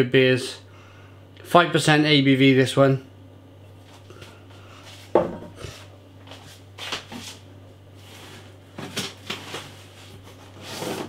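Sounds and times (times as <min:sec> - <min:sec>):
glass bottles knocking on table: 0:05.2 - 0:05.6
scraping and rustling: 0:08.0 - 0:11.0.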